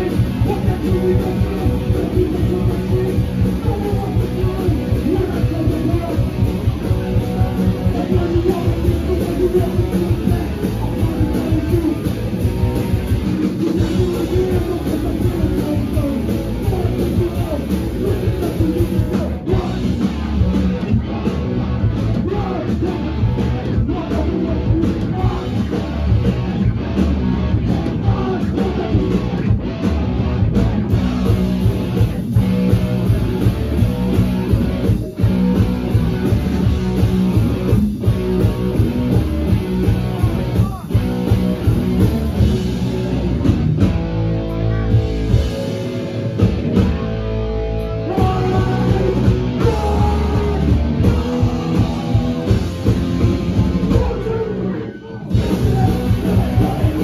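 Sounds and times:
person singing: 0.0s - 20.4s, 22.1s - 26.2s, 27.5s - 29.4s, 48.0s - 57.0s
live rock band playing: 0.0s - 57.0s.

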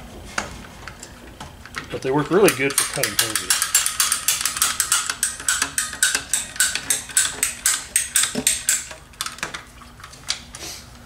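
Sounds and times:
ratcheting pipe cutters clicking: 1.7s - 9.6s.

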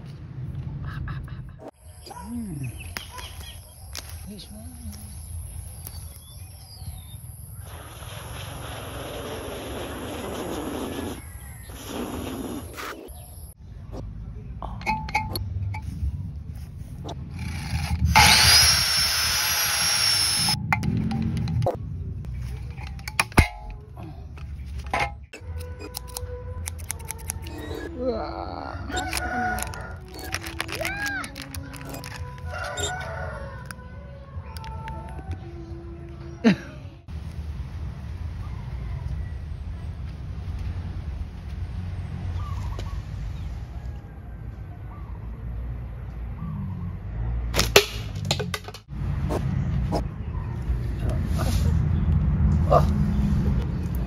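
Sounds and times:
scissors snipping: 25.4s - 27.9s, 28.9s - 32.9s
sharp crack: 47.5s - 48.9s.

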